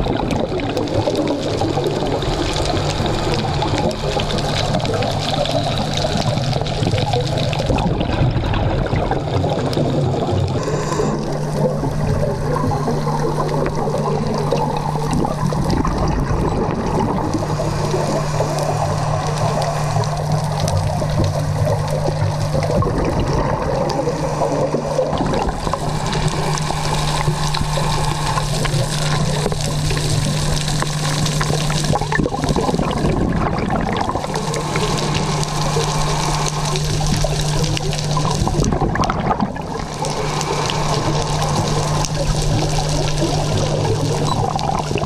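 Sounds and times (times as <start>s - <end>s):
air bubbling underwater: 0.0s - 45.0s
steady low hum: 0.0s - 45.0s
scuba regulator breathing: 10.5s - 12.1s.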